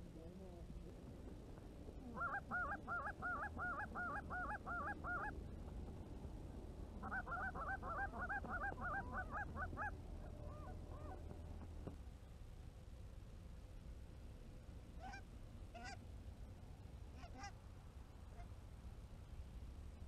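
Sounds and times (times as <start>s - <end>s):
low rumble: 0.0s - 20.0s
goose honking: 2.1s - 5.3s, 7.0s - 11.3s, 15.0s - 16.0s, 17.1s - 17.6s.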